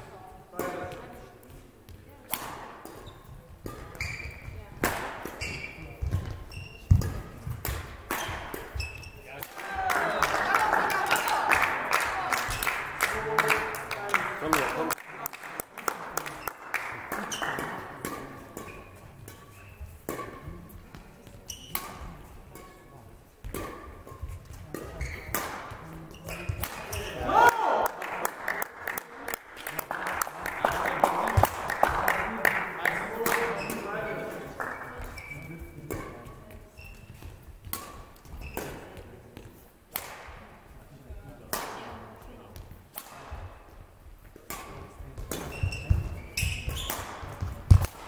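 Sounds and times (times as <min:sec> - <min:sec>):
rackets striking shuttlecock: 0:02.2 - 0:09.6, 0:17.1 - 0:27.2, 0:36.9 - 0:40.4, 0:42.9 - 0:43.7, 0:44.4 - 0:48.0
shoes squeaking on court floor: 0:02.8 - 0:04.7, 0:05.3 - 0:09.4, 0:17.2 - 0:27.3, 0:33.3 - 0:39.6, 0:45.1 - 0:47.9
sharp knocks echoing in hall: 0:23.4 - 0:36.2.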